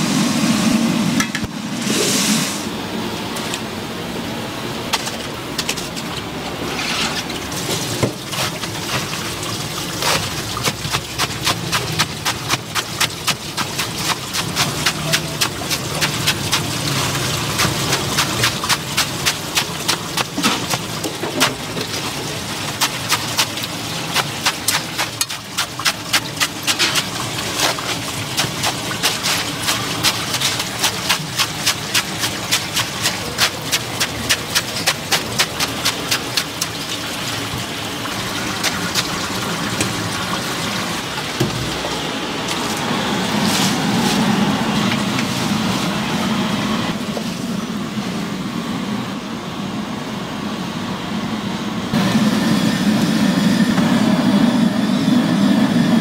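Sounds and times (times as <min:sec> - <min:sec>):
steady low noise: 0:00.0 - 0:04.9
tap water running: 0:06.0 - 0:45.6
cleaver chopping cabbage: 0:09.9 - 0:36.9.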